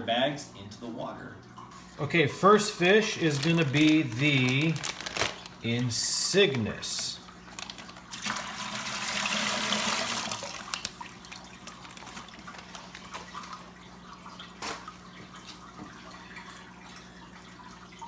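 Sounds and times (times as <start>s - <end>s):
water pouring into plastic bucket: 3.1s - 5.7s, 6.5s - 13.7s
water dripping: 10.3s - 18.0s.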